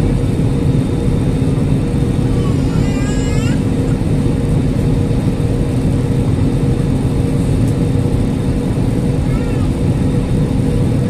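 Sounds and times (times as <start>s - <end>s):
jet airliner cabin drone: 0.0s - 11.0s
low hums: 0.0s - 11.0s.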